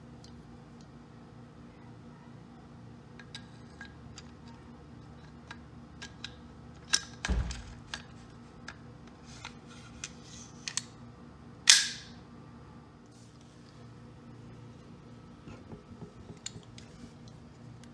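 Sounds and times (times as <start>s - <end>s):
sharp metallic snap: 11.7s - 12.1s
dull knock: 15.5s - 16.4s.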